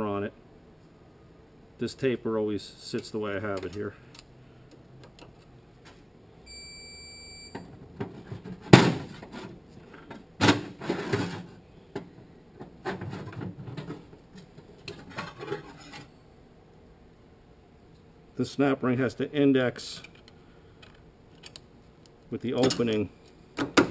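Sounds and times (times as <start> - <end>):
short high beep: 6.5 - 7.6
metal tools clanking and scraping: 14.9 - 16.1, 22.6 - 23.0.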